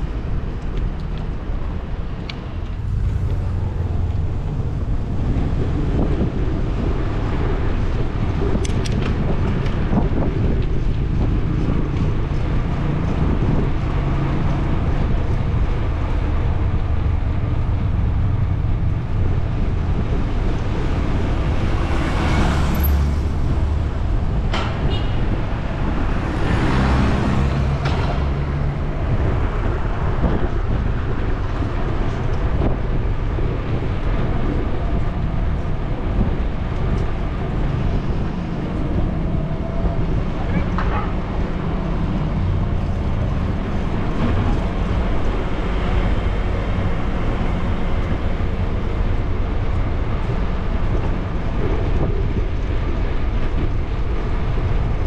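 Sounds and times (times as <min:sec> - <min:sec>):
street traffic: 0:00.0 - 0:55.0
vehicles passing close by: 0:00.0 - 0:55.0
wind on microphone: 0:00.0 - 0:55.0.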